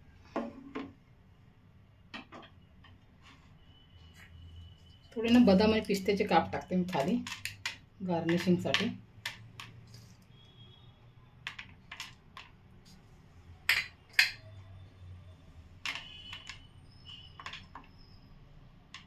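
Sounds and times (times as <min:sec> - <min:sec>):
kitchenware clicking and tapping: 0:06.8 - 0:09.8, 0:13.6 - 0:14.6.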